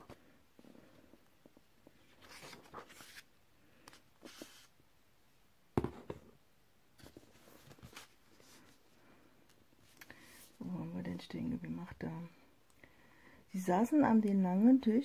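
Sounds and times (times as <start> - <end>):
book pages rustling: 1.5 - 4.7, 7.0 - 8.8.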